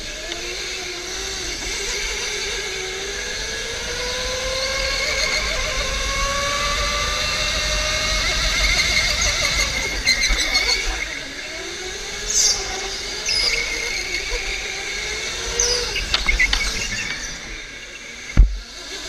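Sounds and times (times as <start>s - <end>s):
electric go-kart motor whining: 0.0s - 19.0s
sharp thump: 18.4s - 18.6s.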